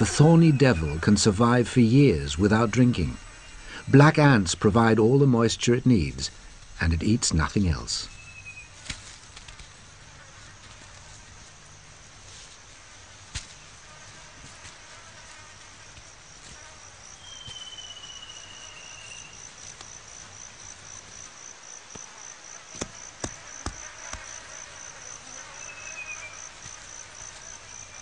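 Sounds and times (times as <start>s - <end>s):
insect chirping: 0.0s - 28.0s.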